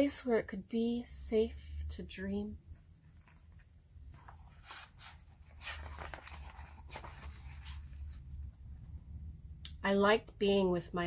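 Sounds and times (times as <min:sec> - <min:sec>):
book page turning: 0:03.0 - 0:08.3.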